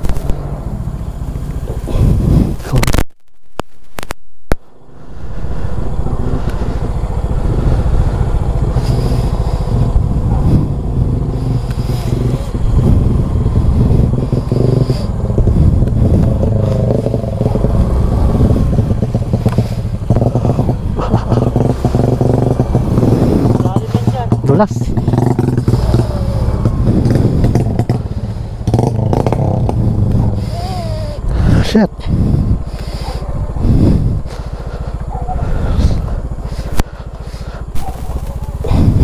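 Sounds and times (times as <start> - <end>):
motor scooter engine running: 0.0 - 2.7, 4.8 - 39.0
bike rattling: 0.0 - 39.0.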